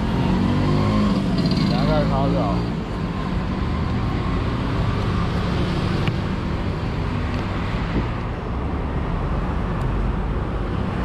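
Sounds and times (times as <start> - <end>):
road traffic drone: 0.0 - 11.0.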